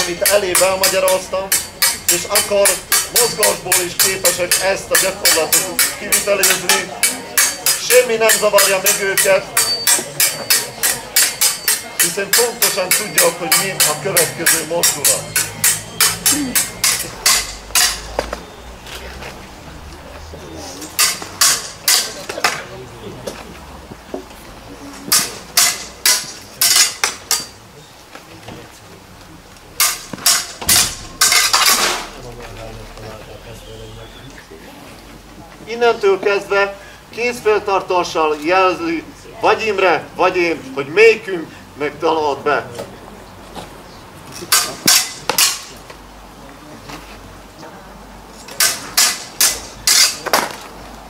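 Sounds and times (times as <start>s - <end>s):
sabre blades clashing: 0.0s - 18.4s, 20.9s - 22.6s, 25.1s - 27.6s, 29.8s - 32.2s, 44.4s - 45.8s, 48.5s - 50.6s.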